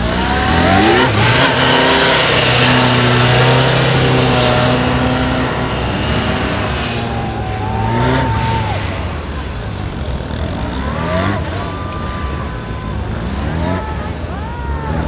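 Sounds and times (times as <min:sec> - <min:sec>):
motorcycle engine revving: 0:00.0 - 0:15.0.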